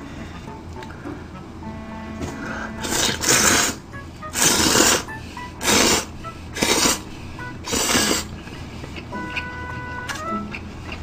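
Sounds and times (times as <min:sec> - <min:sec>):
person slurping noodles: 0:02.8 - 0:03.8, 0:04.4 - 0:07.1, 0:07.7 - 0:08.3.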